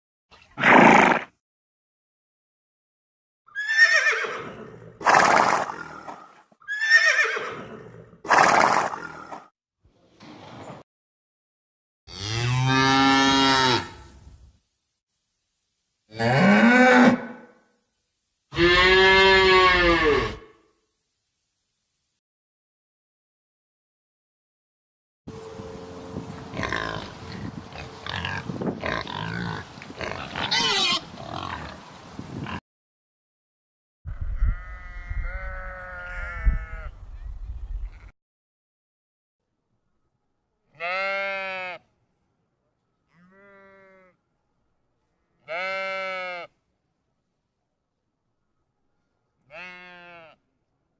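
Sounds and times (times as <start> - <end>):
horse whinnying: 0.6 - 1.3, 3.5 - 9.2
pig grunting and squealing: 3.6 - 9.5, 26.5 - 31.8.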